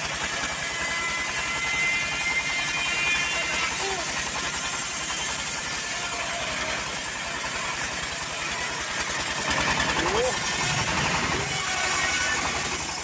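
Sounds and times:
bandsaw mill sawing log: 0.0 - 13.0.

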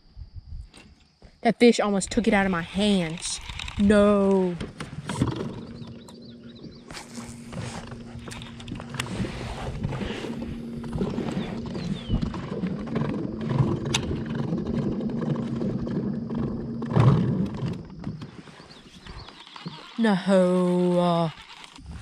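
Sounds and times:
wind on microphone: 0.0 - 0.8, 2.0 - 19.3, 21.8 - 22.0
low hum: 2.1 - 22.0
scattered clicks: 2.2 - 6.2, 19.0 - 21.9
camera handling noise: 6.9 - 10.5.

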